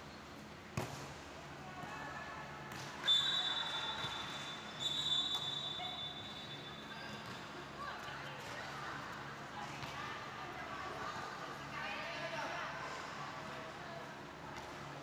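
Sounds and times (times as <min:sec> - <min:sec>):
referee whistle blasts: 0:03.0 - 0:06.7.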